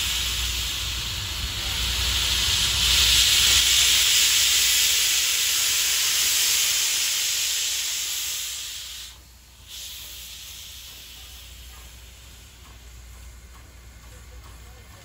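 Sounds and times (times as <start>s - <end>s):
steam locomotive venting steam: 0.0s - 15.0s.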